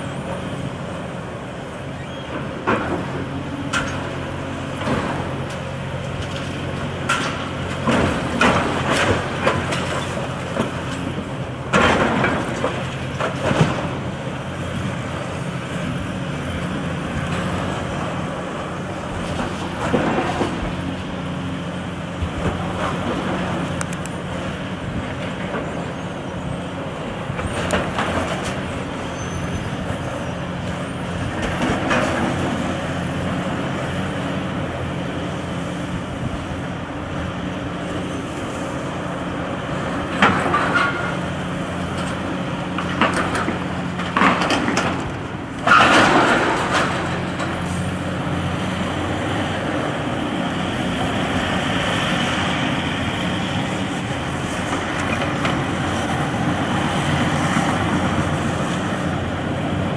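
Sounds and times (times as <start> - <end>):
excavator diesel engine running: 0.0 - 59.9
rubble crashing and clattering: 45.7 - 47.3.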